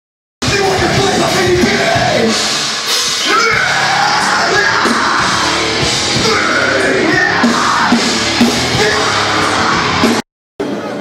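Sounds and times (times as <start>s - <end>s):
live rock band playing: 0.4s - 11.0s
person singing: 6.2s - 10.1s.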